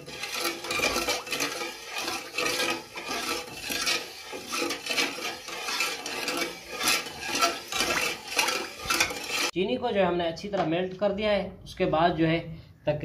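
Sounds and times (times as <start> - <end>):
metal spoon stirring water in pot: 0.0 - 9.6.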